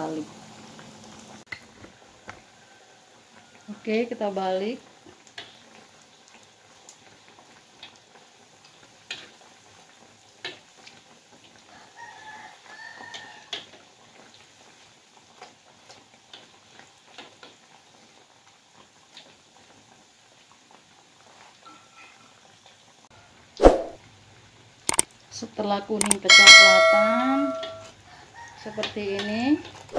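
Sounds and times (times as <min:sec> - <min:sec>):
sharp taps and clicks: 0:26.0 - 0:26.3.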